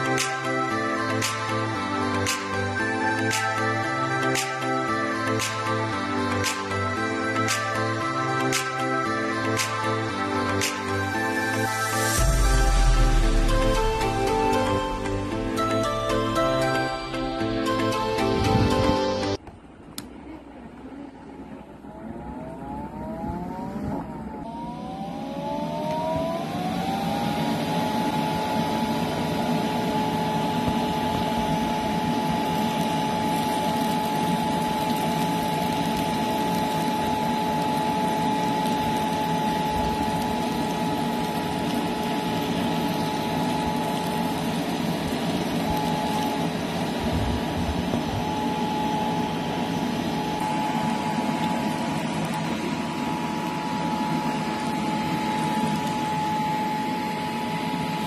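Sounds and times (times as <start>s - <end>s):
fan whine: 0.0s - 58.0s.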